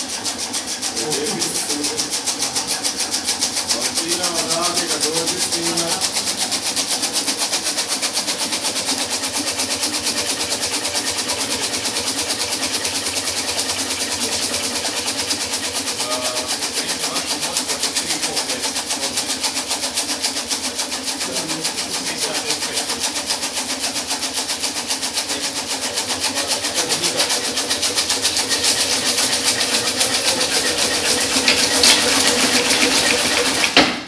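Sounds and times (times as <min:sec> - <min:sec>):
shake table mechanical hiss: 0:00.0 - 0:34.0.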